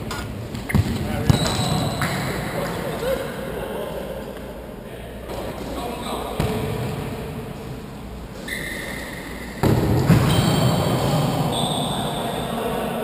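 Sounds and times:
trainers squeaking on floor: 8.4s - 9.6s.

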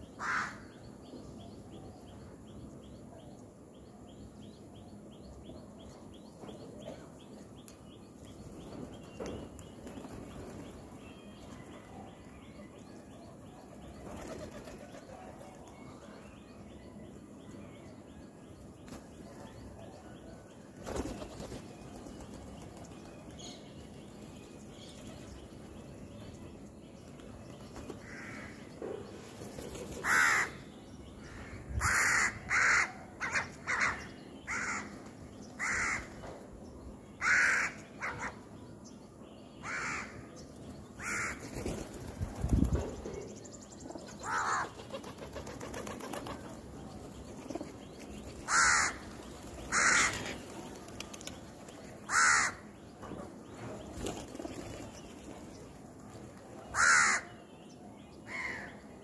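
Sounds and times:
crows cawing: 0.2s - 0.7s, 28.0s - 28.6s, 30.0s - 30.6s, 31.3s - 35.0s, 35.6s - 36.1s, 37.2s - 38.4s, 39.6s - 40.2s, 41.0s - 41.4s, 44.2s - 44.7s, 48.5s - 49.1s, 49.7s - 50.3s, 52.1s - 52.7s, 56.7s - 57.4s.

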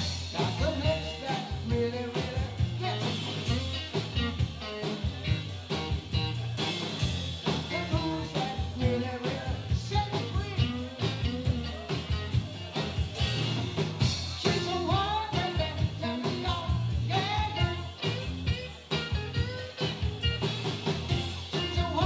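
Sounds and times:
man singing: 0.0s - 5.5s, 7.4s - 12.6s, 14.2s - 18.3s, 21.4s - 22.0s
drum kit: 0.0s - 22.0s
electric guitars: 0.0s - 22.0s.

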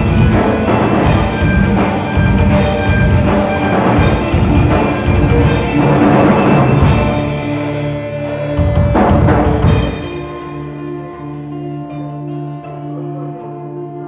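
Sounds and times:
heavy drum hits: 0.0s - 10.6s
folk-rock band playing: 0.0s - 14.0s.

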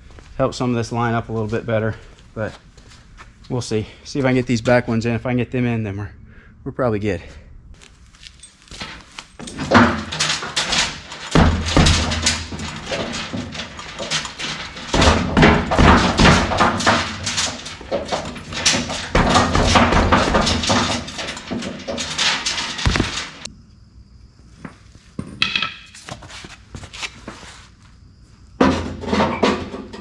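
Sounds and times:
metal clanks and thumps: 8.4s - 23.5s, 28.6s - 30.0s.

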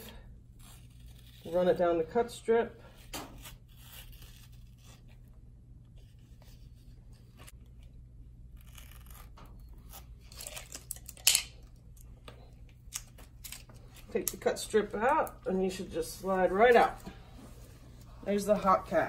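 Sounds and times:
knife scraping and tearing cast: 0.0s - 1.8s, 3.0s - 5.2s, 8.6s - 11.5s
cast ripping: 8.5s - 11.6s.

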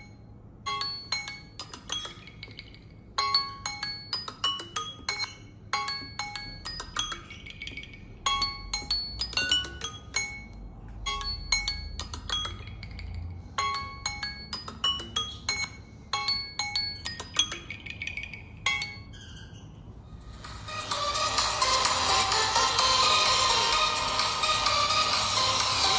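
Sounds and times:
timer alarm melody: 3.2s - 17.6s, 20.2s - 25.9s.

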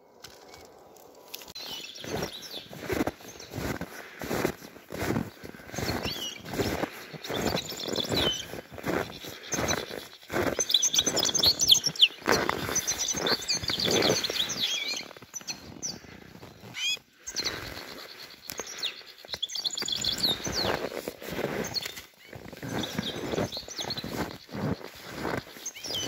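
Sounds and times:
footsteps in deep snow: 0.2s - 26.0s
finches twittering: 4.5s - 20.9s, 21.6s - 26.0s.

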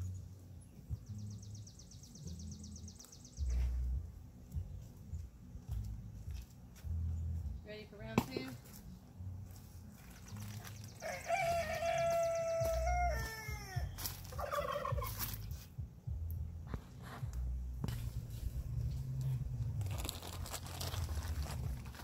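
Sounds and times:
rooster crowing: 10.9s - 14.1s.

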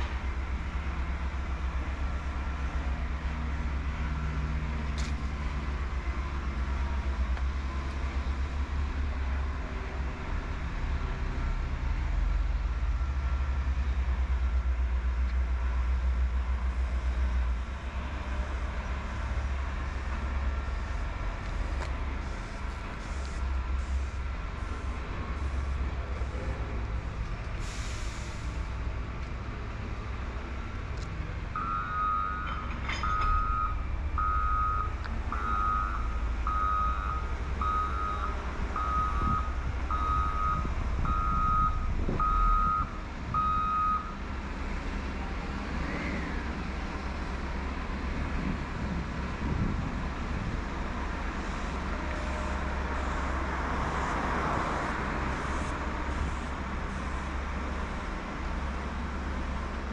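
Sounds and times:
low rumble of machinery: 0.0s - 59.9s
reversing alarm beeps: 31.6s - 44.2s.

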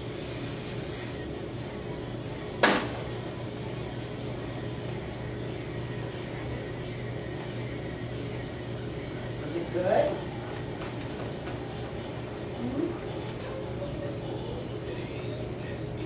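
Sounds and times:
aerosol spray hiss: 0.0s - 1.2s
steady low hum: 0.0s - 16.0s.

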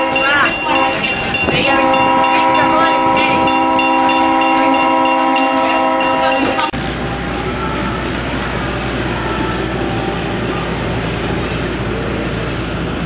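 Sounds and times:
train horn chord: 0.0s - 10.4s
diesel locomotive engine running: 0.0s - 13.0s.

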